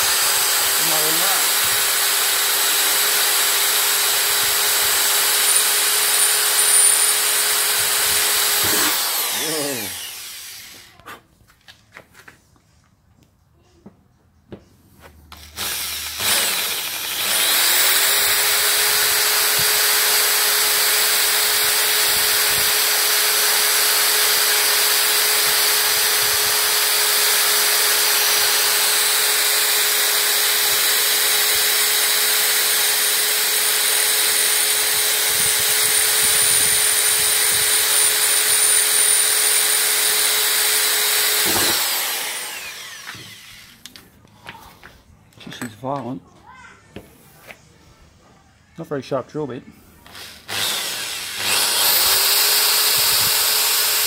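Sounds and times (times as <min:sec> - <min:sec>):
electric drill boring through steel: 0:00.0 - 0:11.0, 0:15.3 - 0:43.9, 0:50.0 - 0:54.0.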